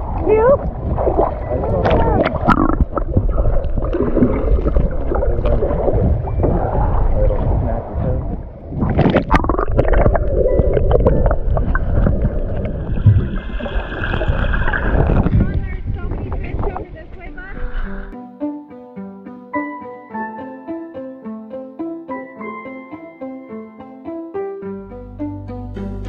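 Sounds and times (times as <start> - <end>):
bubbles gurgling: 0.0 - 16.9
muffled underwater rumble: 0.0 - 18.1
water rushing underwater: 0.0 - 18.1.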